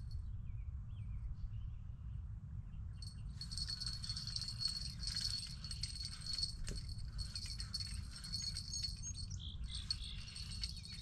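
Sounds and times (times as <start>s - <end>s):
wind rumbling on microphone: 3.0s - 11.0s
high rapid rattling chatter: 3.4s - 11.0s.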